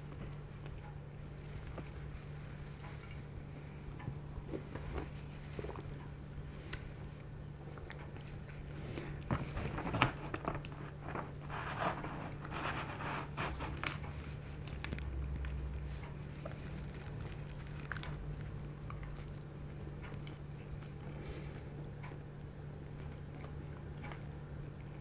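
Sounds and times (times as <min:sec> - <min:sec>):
pizza crust crackling: 0:00.0 - 0:21.5
cardboard scraping: 0:09.2 - 0:14.0.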